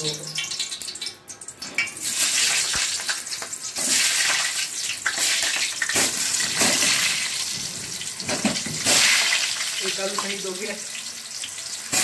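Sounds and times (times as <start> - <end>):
oil sizzling loudly: 0.0 - 12.0.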